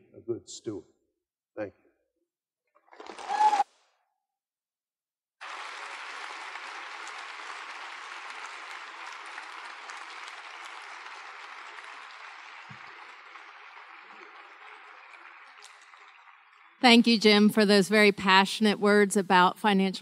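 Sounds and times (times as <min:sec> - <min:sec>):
audience applauding: 0:05.4 - 0:17.5.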